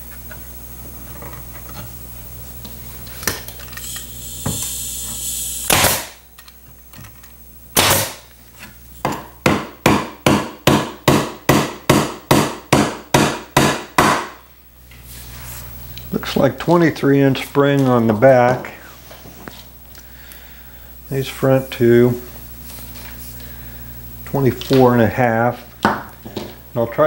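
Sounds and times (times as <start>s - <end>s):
hammer driving nails into metal: 5.7s - 6.1s, 7.8s - 8.2s.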